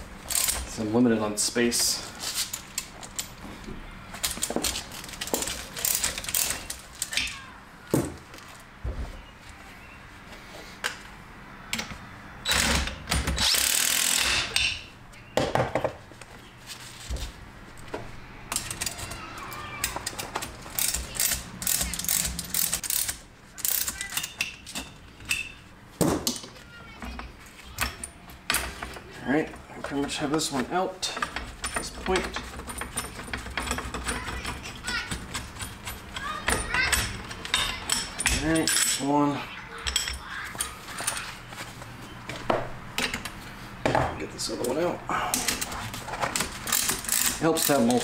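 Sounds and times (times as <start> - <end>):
ratcheting wrench clicking: 0.3 - 0.6, 12.5 - 14.7, 19.9 - 24.9, 46.6 - 48.0.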